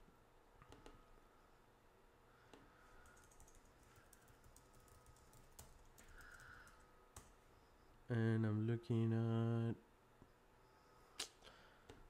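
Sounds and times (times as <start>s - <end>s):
faint keyboard typing: 2.5s - 7.4s.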